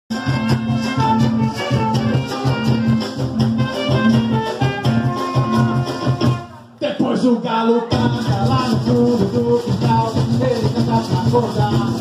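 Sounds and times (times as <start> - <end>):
hollow log drums beat: 0.1 - 6.5, 7.9 - 12.0
shaken rattles: 8.1 - 12.0.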